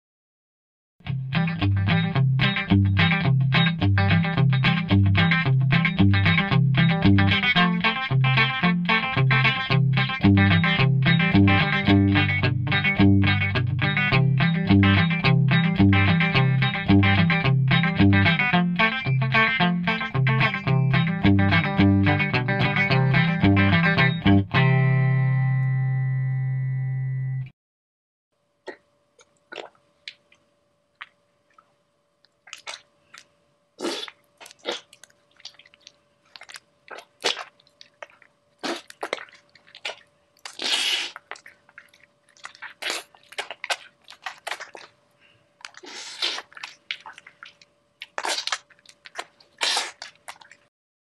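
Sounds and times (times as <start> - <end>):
faint steady hum: 28.4 - 50.7.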